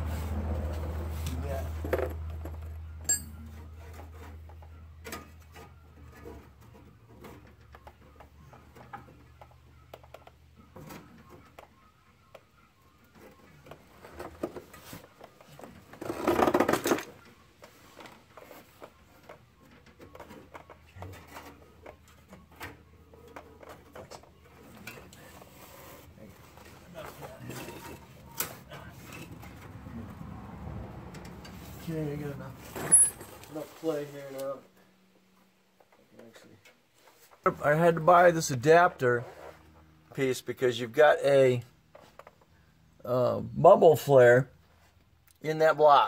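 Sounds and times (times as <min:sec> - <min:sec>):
rough scraping: 0:24.5 - 0:30.3, 0:37.0 - 0:42.2.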